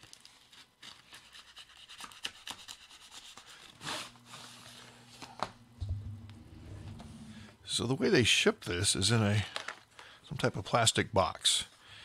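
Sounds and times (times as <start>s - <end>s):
plastic packaging crackling: 0.0s - 1.0s, 9.4s - 10.1s.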